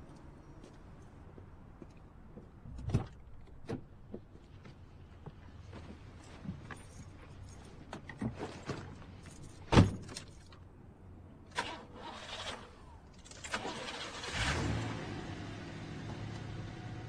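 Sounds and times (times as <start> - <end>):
car engine starting: 11.5 - 17.0.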